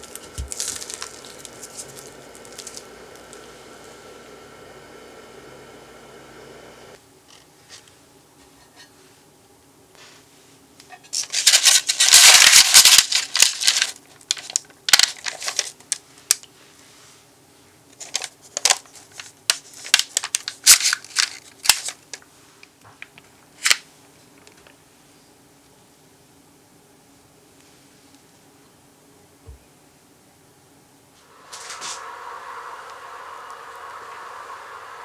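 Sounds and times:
sticky crackly batter scraping: 0.0s - 2.8s.

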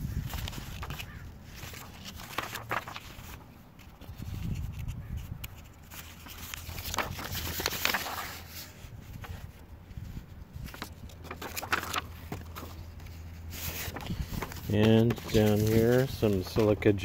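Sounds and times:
paper rustling and crackling: 0.0s - 17.0s.

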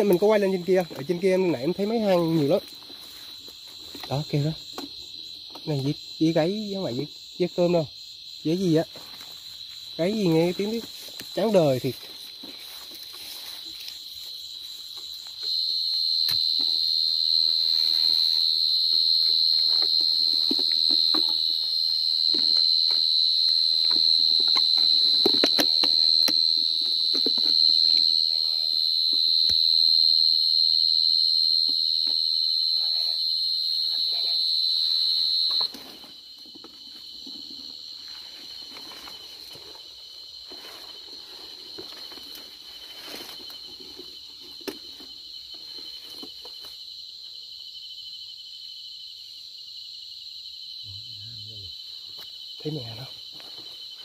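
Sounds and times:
cricket trilling: 0.0s - 54.0s
faint cricket trill: 0.0s - 54.0s
footsteps rustling in grass: 10.8s - 15.0s.

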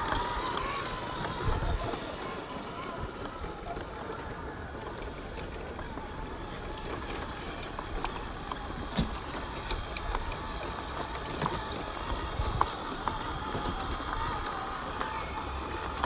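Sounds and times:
toy truck running: 0.0s - 16.0s
tyres clicking on stones: 0.0s - 16.0s.

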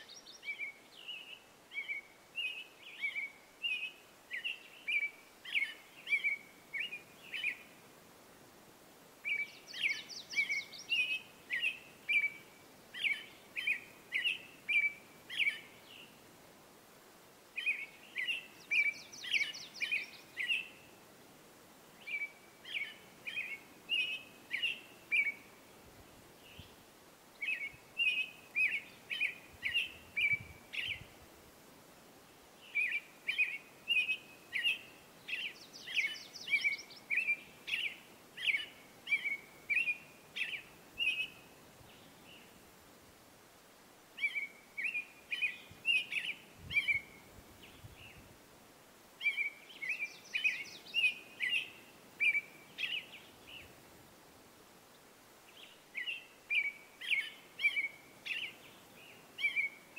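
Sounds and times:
robin singing whistled notes: 0.0s - 7.7s, 9.2s - 16.1s, 17.6s - 20.9s, 22.0s - 25.5s, 27.4s - 31.1s, 32.6s - 42.5s, 44.2s - 48.2s, 49.2s - 53.7s, 55.5s - 59.9s.

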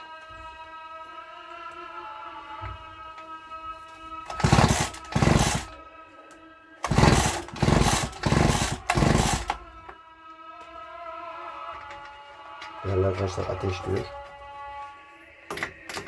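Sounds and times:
chainsaw pull-starter cord pulls: 4.3s - 5.7s, 6.8s - 9.6s.

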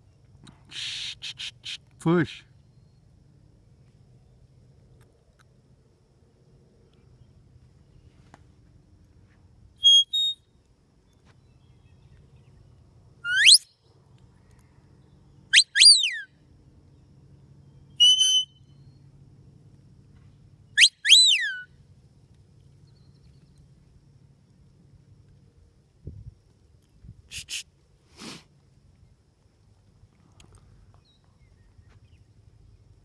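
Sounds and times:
herding whistle signals: 9.8s - 10.4s, 13.3s - 13.7s, 15.5s - 16.3s, 18.0s - 18.7s, 20.8s - 21.7s.

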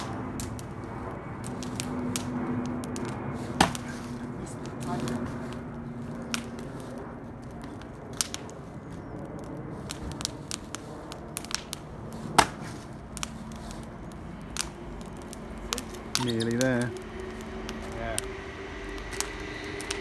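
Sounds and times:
faint crackles: 0.0s - 20.0s
axe chopping tree trunk: 3.6s - 3.8s, 12.3s - 12.7s.

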